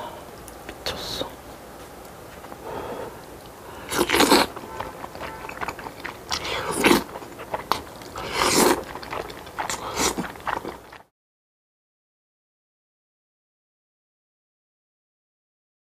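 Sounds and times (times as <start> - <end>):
chewing: 2.4 - 11.1
noodles slurping: 3.1 - 11.1.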